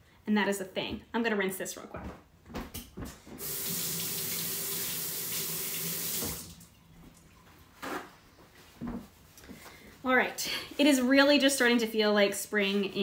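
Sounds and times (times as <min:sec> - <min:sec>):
faucet running into sink: 0:03.4 - 0:07.2.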